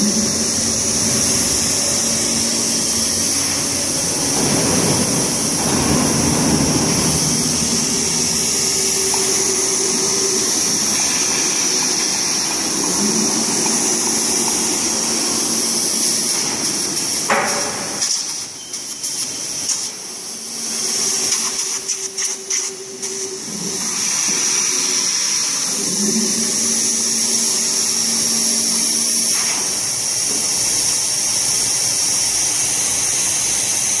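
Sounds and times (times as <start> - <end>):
motor hum: 0.0 - 18.0
machine high hiss: 0.0 - 34.0.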